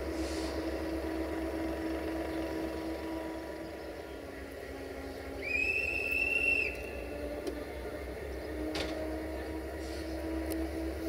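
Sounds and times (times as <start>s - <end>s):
electric locomotive humming: 0.0s - 11.0s
hand whistle blast: 5.4s - 6.9s.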